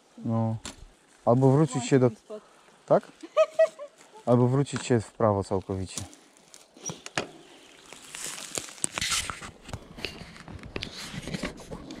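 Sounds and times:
camera handling rustling: 0:07.9 - 0:12.0.

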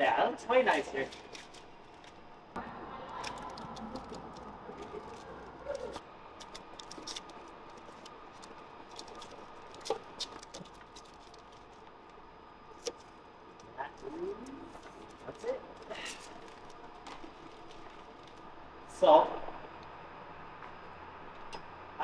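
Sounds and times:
faint steady hum: 0:00.0 - 0:22.0
masking tape peeling crackles: 0:00.7 - 0:02.3, 0:03.0 - 0:18.6.

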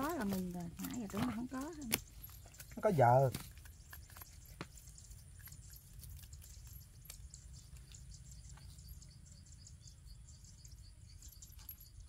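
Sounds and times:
high insect trill: 0:00.0 - 0:12.0
insects and birds chirping: 0:00.0 - 0:12.0.

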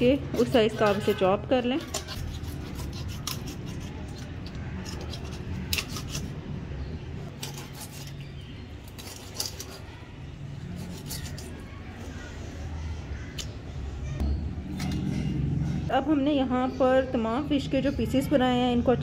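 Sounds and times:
blade clicking and snipping fish: 0:01.8 - 0:06.4, 0:07.3 - 0:09.9.

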